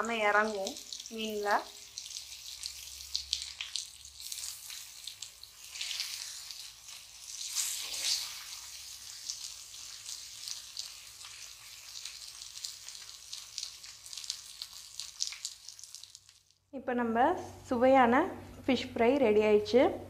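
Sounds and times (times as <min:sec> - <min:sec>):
fish sizzling in oil: 0:00.0 - 0:16.6.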